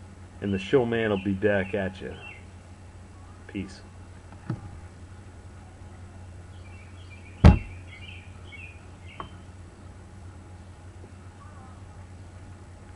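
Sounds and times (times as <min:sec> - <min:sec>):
birds chirping: 0:00.2 - 0:12.8
sharp thump: 0:07.4 - 0:07.8.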